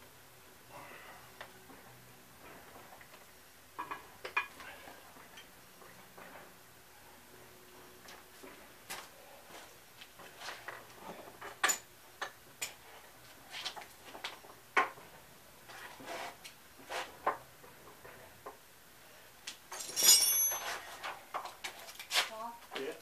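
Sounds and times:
hand tools clinking on metal: 0:19.7 - 0:20.9.

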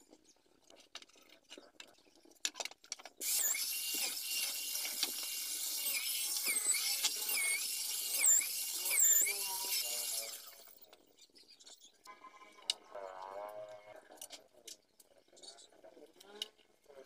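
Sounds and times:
electric drill boring into wood: 0:03.2 - 0:10.8.

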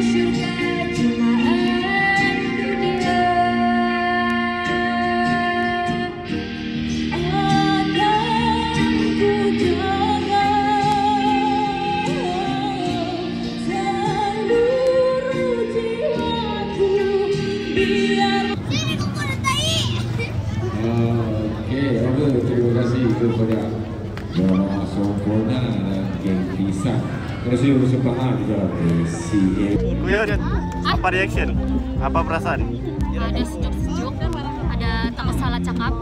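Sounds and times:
instrumental backing: 0:29.7 - 0:36.0.

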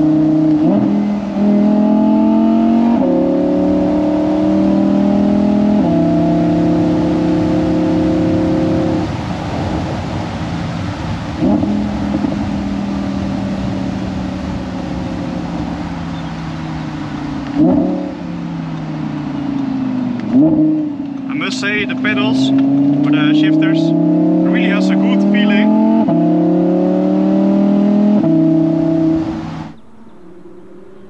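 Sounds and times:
sports car engine running: 0:00.0 - 0:31.0
engine rev blips: 0:15.5 - 0:31.0.

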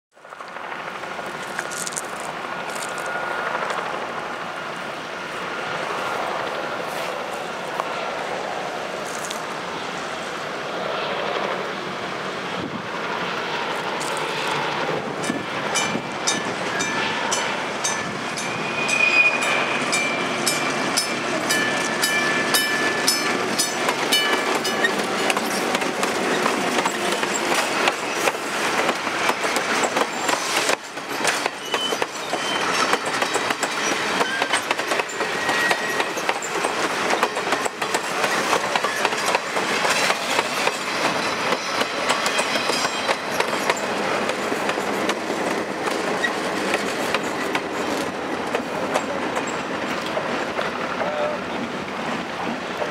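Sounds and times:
train rolling past: 0:00.2 - 0:52.9
high squealing tones: 0:17.8 - 0:21.1
wheels clicking over rail joints: 0:19.9 - 0:51.1.

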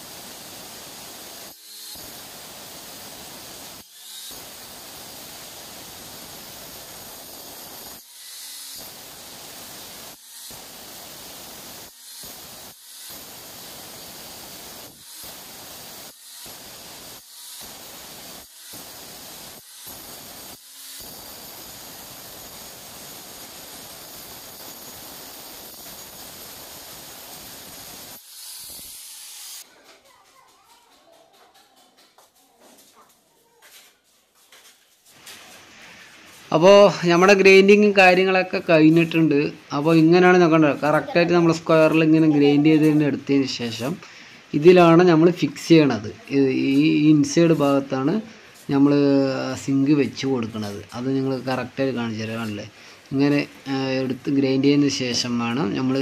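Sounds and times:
angle grinder grinding stone: 0:00.0 - 0:29.7, 0:44.6 - 0:56.0.

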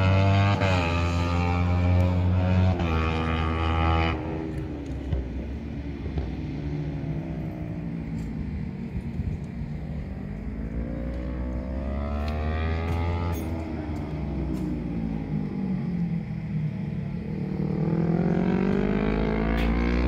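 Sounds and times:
distant racing engine: 0:00.0 - 0:20.0.

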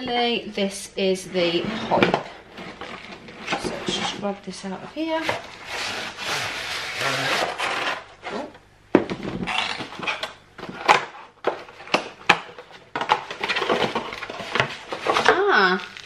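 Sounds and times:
cardboard rustling and scraping: 0:01.4 - 0:04.4, 0:05.1 - 0:08.5, 0:12.6 - 0:16.0.

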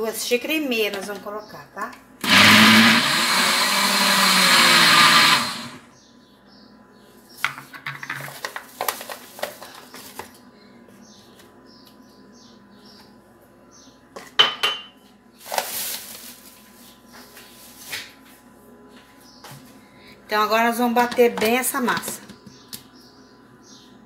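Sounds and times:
blender running: 0:02.2 - 0:05.9
plastic bag crinkling: 0:15.4 - 0:16.7.

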